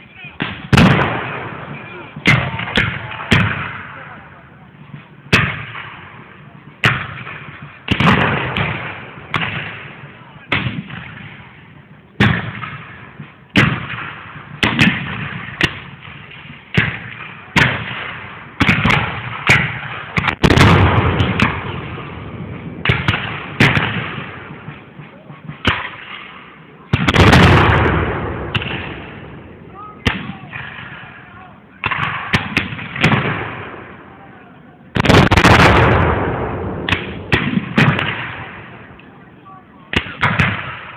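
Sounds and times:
musket shots with echo: 0:00.4 - 0:04.0, 0:06.8 - 0:11.4, 0:12.2 - 0:24.7, 0:26.9 - 0:31.2, 0:31.8 - 0:34.0, 0:35.0 - 0:38.9, 0:39.9 - 0:40.9.

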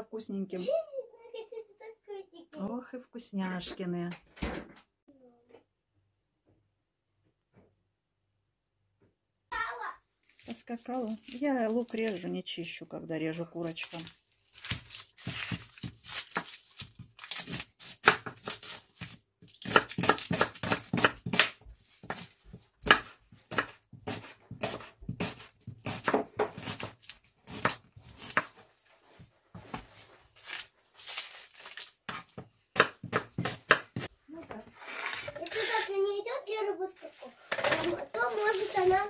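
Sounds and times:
dry onion skins rustling: 0:10.2 - 0:12.4, 0:13.6 - 0:34.1, 0:36.9 - 0:39.0
knife chopping on wooden board: 0:14.6 - 0:28.5, 0:32.1 - 0:34.1.

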